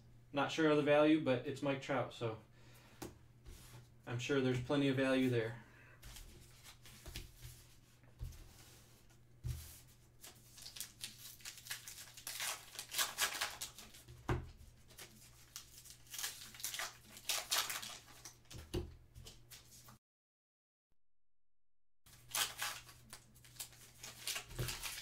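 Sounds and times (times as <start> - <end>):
paper wrapper tearing and crinkling: 10.2 - 18.6, 22.1 - 25.0.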